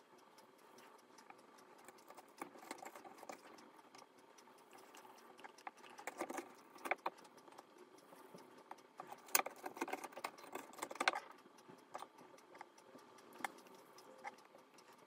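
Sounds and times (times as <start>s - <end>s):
fingers scraping seeds in metal pot: 9.0s - 11.3s.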